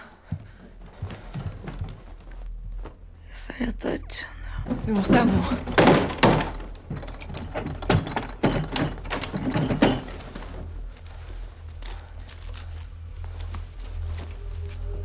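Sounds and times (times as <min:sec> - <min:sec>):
low steady hum: 0:00.0 - 0:15.0
knocks and rustles at wooden drawers: 0:04.6 - 0:10.7.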